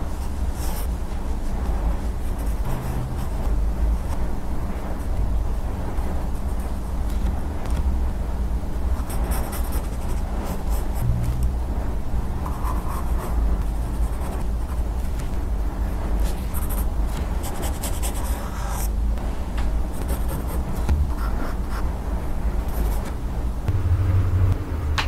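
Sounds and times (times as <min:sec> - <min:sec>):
low rumble: 0:00.0 - 0:09.0, 0:10.9 - 0:17.2, 0:20.6 - 0:25.0
pencil scratching on paper: 0:02.0 - 0:04.2, 0:09.0 - 0:11.0, 0:16.2 - 0:18.9, 0:19.9 - 0:21.9.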